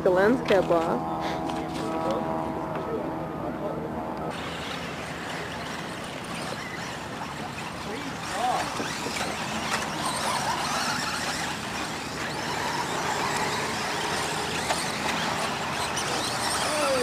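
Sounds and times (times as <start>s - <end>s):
small rc car motors: 4.3s - 17.0s.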